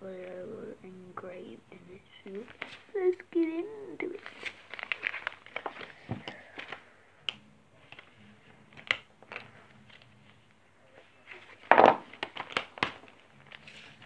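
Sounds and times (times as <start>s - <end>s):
plastic crackle: 2.3s - 3.0s, 4.0s - 10.6s, 11.2s - 14.0s.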